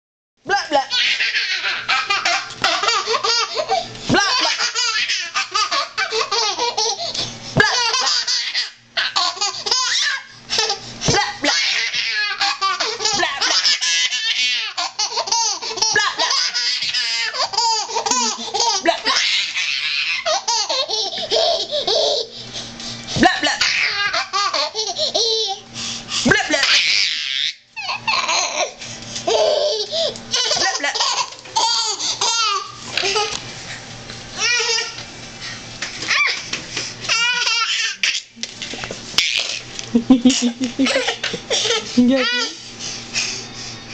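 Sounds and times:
toddler giggling: 0:00.8 - 0:22.3, 0:23.2 - 0:25.6, 0:26.3 - 0:33.4, 0:39.2 - 0:42.6.

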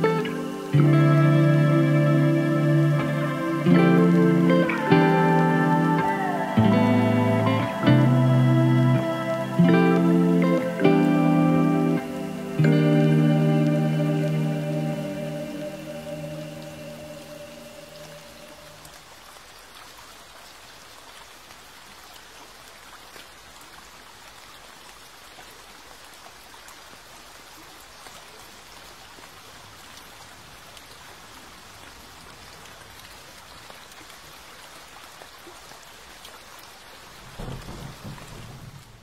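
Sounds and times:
steady rain falling: 0:00.0 - 0:39.0
thunder rumble: 0:37.2 - 0:39.0.

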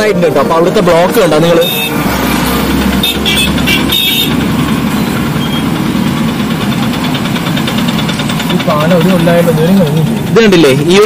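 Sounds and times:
road traffic of motorcycles and cars: 0:00.0 - 0:11.0
short horn honks: 0:01.6 - 0:02.0, 0:03.0 - 0:04.4.

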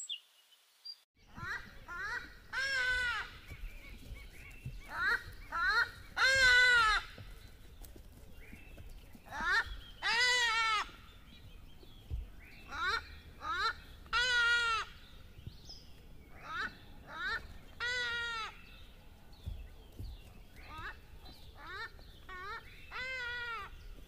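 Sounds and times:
animal calling: 0:19.9 - 0:23.9.

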